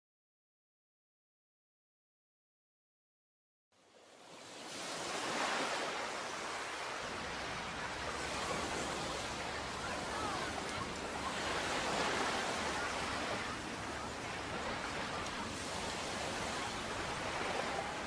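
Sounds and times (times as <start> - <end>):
small waves washing on sand: 3.8 - 18.0.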